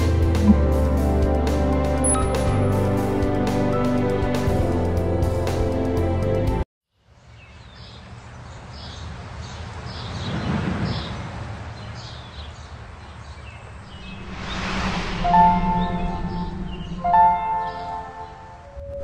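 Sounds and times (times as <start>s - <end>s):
music: 0.0s - 6.6s, 14.2s - 19.0s
rushing noise swells: 13.8s - 18.9s.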